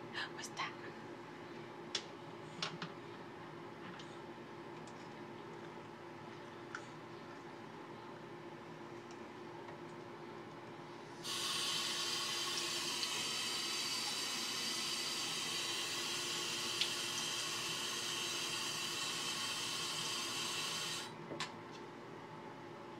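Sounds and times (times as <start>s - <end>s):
water running into sink: 11.2s - 21.1s.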